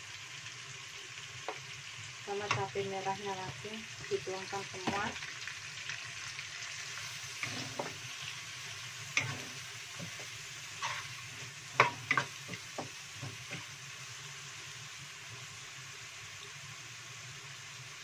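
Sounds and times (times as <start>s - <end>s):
spice paste sizzling in oil: 0.0s - 18.0s
spatula knocking and scraping pan: 7.4s - 8.1s, 9.2s - 11.1s, 11.7s - 13.7s.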